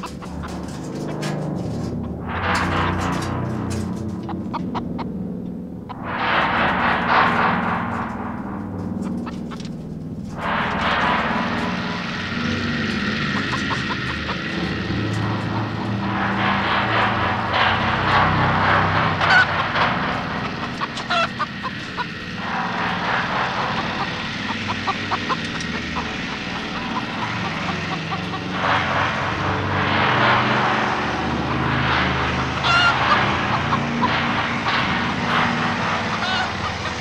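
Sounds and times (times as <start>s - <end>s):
low droning horror score: 0.0s - 37.0s
chicken squawking: 20.8s - 22.1s, 32.6s - 33.0s, 36.1s - 37.0s.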